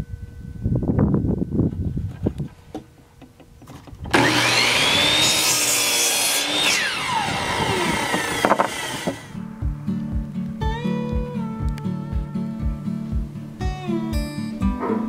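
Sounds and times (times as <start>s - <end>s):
miter saw whining and cutting wood: 4.1s - 9.4s
wooden knocks: 8.1s - 9.2s.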